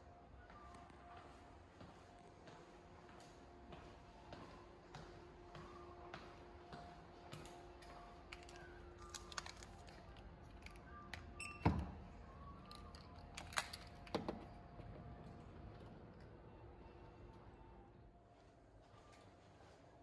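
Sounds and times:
door lock reader beep: 0:11.4 - 0:12.0.

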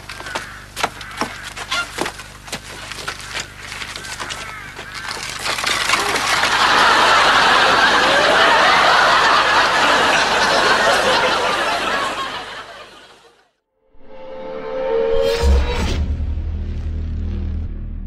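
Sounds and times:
audience laughing: 0:05.8 - 0:13.5.

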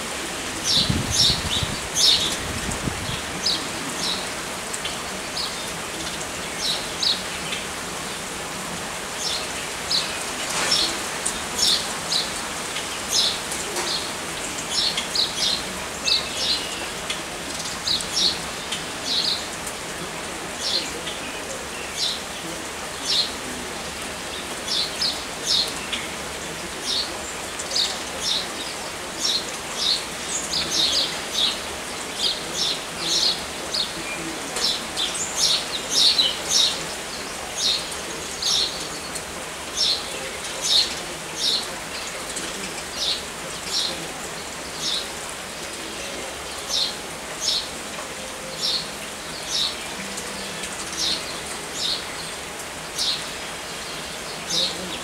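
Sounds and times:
steady rain: 0:00.0 - 0:55.0.

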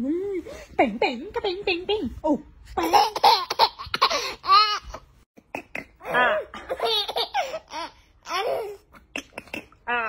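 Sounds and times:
baby giggling: 0:02.8 - 0:05.0, 0:06.6 - 0:09.6.

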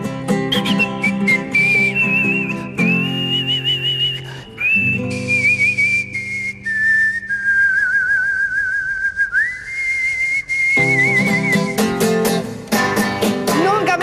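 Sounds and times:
nylon-string guitar strummed: 0:00.0 - 0:04.1, 0:10.8 - 0:14.0
person whistling a tune: 0:00.5 - 0:12.2.

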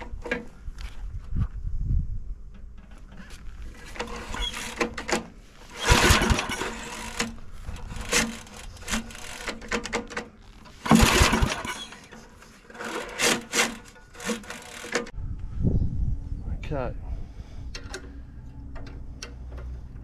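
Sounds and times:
starter handle rattling: 0:02.5 - 0:15.1
starter cord pulled rasping: 0:03.8 - 0:15.1.

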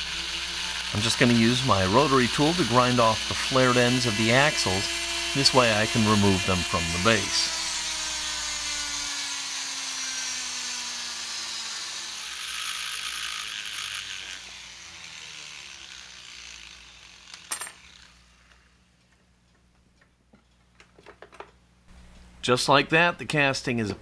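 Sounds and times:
rotary tool grinding metal: 0:00.0 - 0:18.8.

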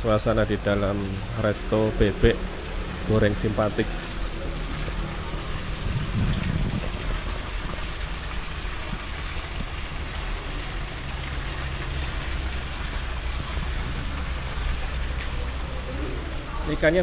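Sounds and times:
waterfall splashing into pond: 0:00.0 - 0:17.0
low hum: 0:04.0 - 0:09.0.

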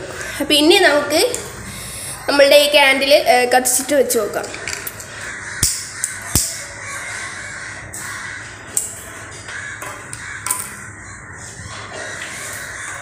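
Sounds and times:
birds cawing: 0:04.5 - 0:13.0.

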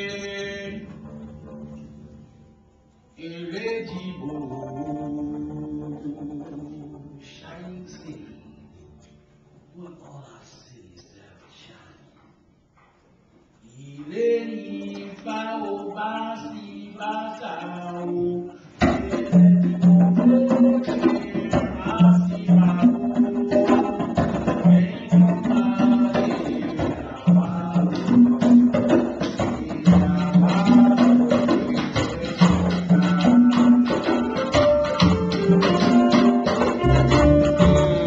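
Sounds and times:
man singing: 0:00.0 - 0:01.1, 0:03.2 - 0:08.6, 0:13.6 - 0:38.0
congas: 0:14.1 - 0:38.0
live band playing a groove: 0:18.8 - 0:38.0
cymbals: 0:28.0 - 0:38.0.

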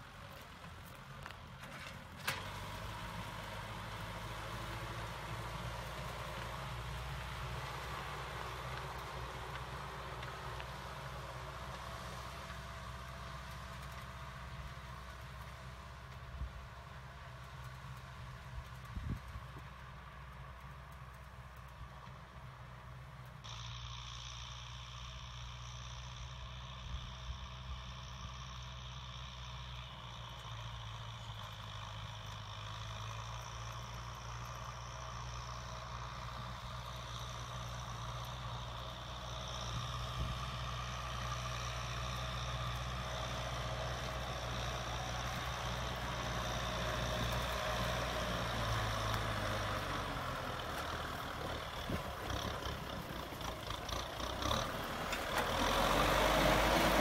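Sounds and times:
tractor diesel engine running: 0:00.0 - 0:57.0
engine clattering: 0:28.7 - 0:57.0.

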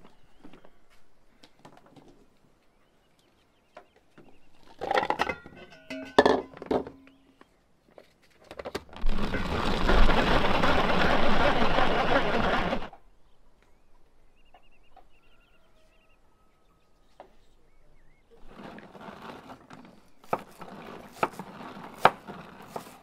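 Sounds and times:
kitchenware clattering: 0:04.8 - 0:07.0
food chopper running: 0:09.0 - 0:12.9.

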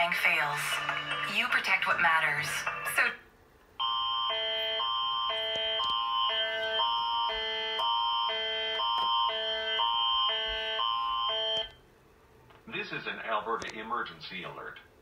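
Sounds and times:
emergency alert tones: 0:03.8 - 0:11.8.

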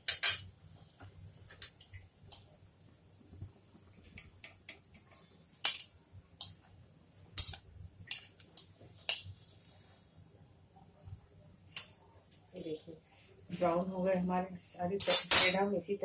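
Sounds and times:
metal tongs clicking on frying pan: 0:07.4 - 0:09.2.

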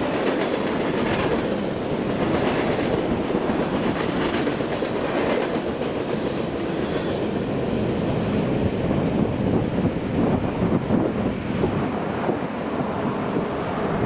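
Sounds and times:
steel wheels clattering on rails: 0:00.0 - 0:07.6
freight train rolling past: 0:00.0 - 0:14.0.

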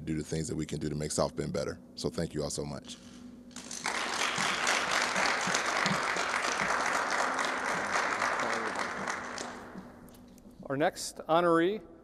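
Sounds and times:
applause: 0:03.6 - 0:10.0.

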